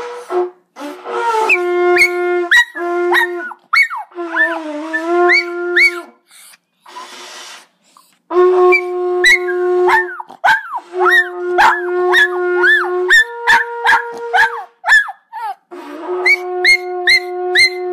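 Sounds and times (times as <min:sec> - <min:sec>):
hunting horn long notes: 0:00.0 - 0:06.1, 0:08.3 - 0:10.2, 0:10.8 - 0:14.6
small dog howling and yelping: 0:02.0 - 0:06.1, 0:08.7 - 0:17.9.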